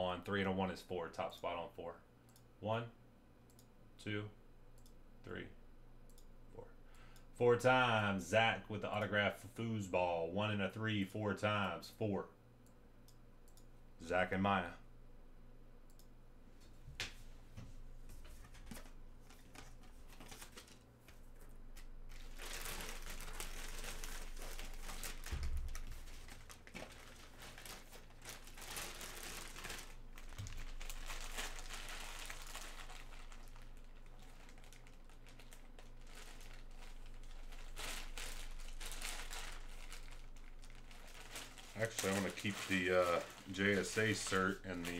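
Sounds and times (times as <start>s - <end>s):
plastic bag crinkling: 18.8s - 44.9s.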